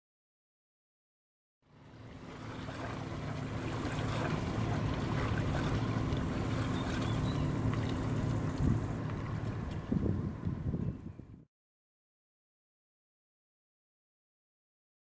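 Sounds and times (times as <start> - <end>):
diesel engine drone: 1.6 - 11.4
higher hum: 1.8 - 10.8.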